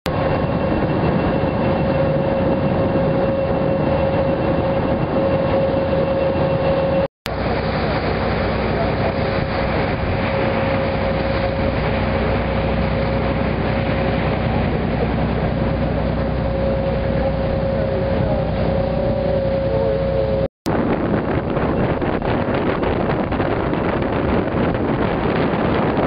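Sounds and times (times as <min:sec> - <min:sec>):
boat engine droning: 0:00.1 - 0:26.0
engine whine: 0:00.1 - 0:26.0
wind buffeting microphone: 0:00.1 - 0:26.0
water rushing: 0:05.4 - 0:26.0.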